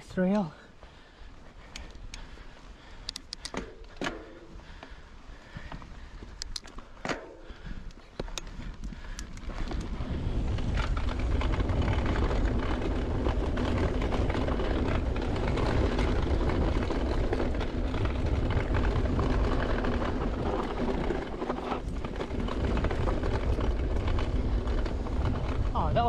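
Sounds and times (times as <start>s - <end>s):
bike tyres on dirt trail: 0.0s - 26.0s
bike clicks and rattles: 0.3s - 26.0s
wind noise on microphone: 1.6s - 26.0s.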